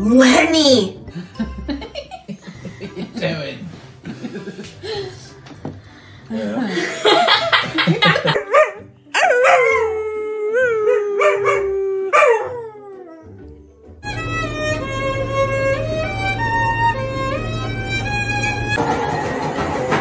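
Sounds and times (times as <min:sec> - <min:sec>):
dog howling: 0:08.4 - 0:13.4
violin music: 0:10.3 - 0:20.0.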